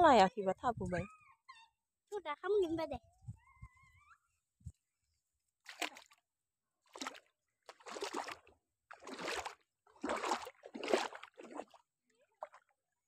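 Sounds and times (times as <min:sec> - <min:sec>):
pond water splashing: 0:05.6 - 0:06.2, 0:06.8 - 0:12.8.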